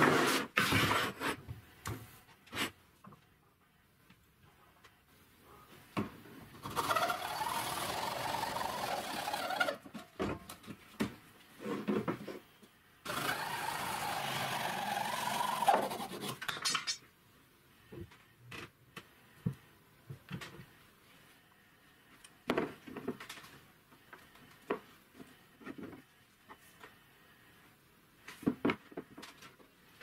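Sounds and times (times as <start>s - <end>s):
hacksaw cutting plastic pipe: 6.6s - 10.0s, 13.1s - 16.7s.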